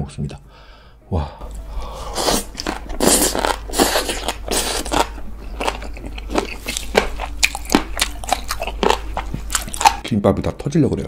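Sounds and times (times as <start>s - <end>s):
wet crunching and chewing: 2.2s - 10.1s.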